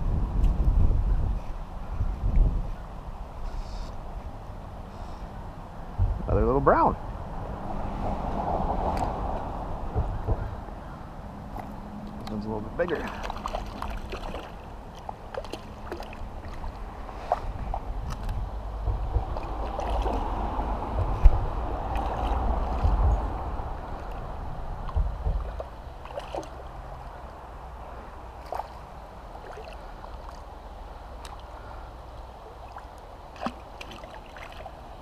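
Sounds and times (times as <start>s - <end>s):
water sloshing and splashing: 8.2s - 10.6s, 11.4s - 35.0s
lapping water: 12.9s - 18.4s, 19.2s - 26.8s, 28.4s - 30.5s, 31.2s - 34.8s.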